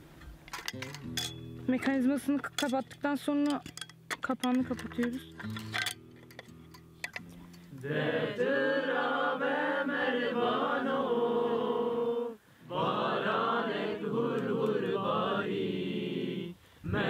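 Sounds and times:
group singing without instruments: 7.7 - 17.0.

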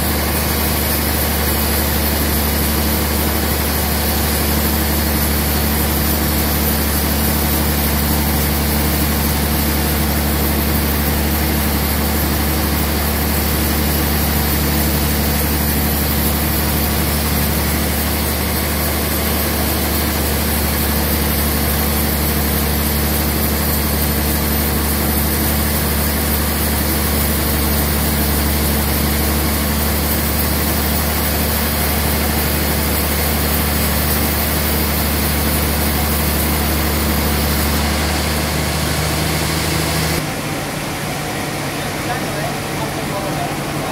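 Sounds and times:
band sawmill sawing log: 0.0 - 40.2.

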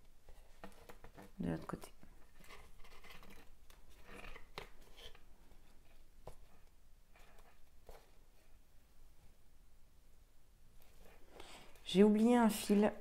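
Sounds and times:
cords rustling and scraping: 0.2 - 8.6.

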